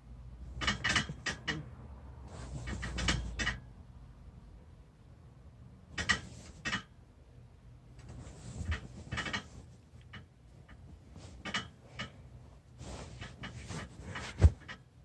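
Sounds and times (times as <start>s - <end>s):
bedding rustling: 2.2s - 3.4s, 8.0s - 14.8s.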